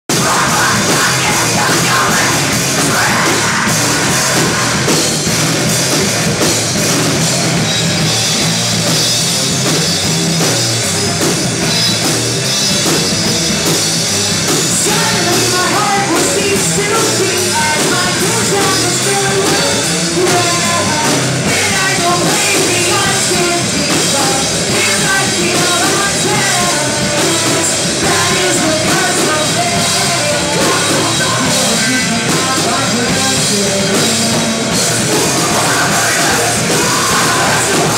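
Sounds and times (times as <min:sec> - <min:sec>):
vocals: 0:00.0 - 0:06.2, 0:14.4 - 0:37.9
live heavy metal band: 0:00.1 - 0:37.9.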